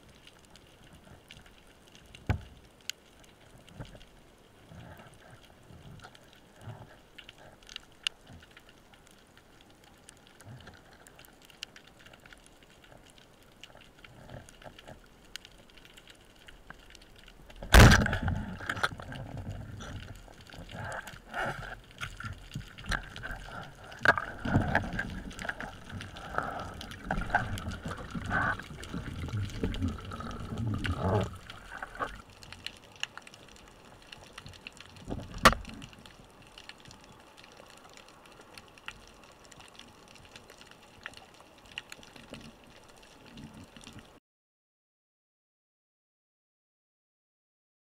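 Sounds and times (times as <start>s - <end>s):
faint reef clicks: 0.0s - 44.2s
water rushing and gurgling: 9.7s - 44.2s
speargun crack: 17.7s - 18.1s.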